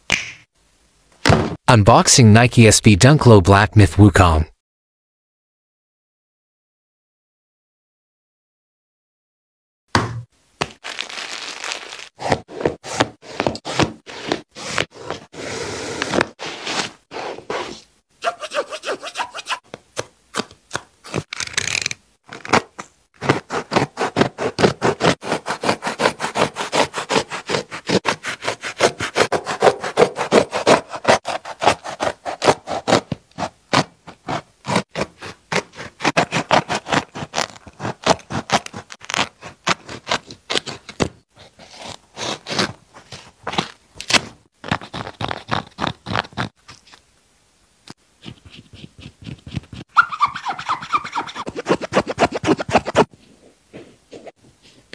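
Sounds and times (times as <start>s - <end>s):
hands rubbing fabric: 10.9s - 19.6s
blade sawing through shoe: 12.2s - 19.7s, 23.2s - 46.5s, 48.2s - 53.2s.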